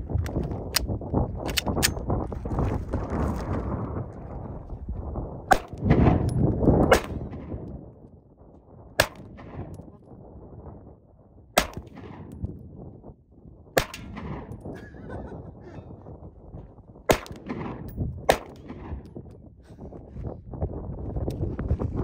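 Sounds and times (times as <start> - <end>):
pistol shots: 5.5 - 7.6, 9.0 - 9.9, 11.6 - 12.4, 13.8 - 14.6, 17.1 - 19.2.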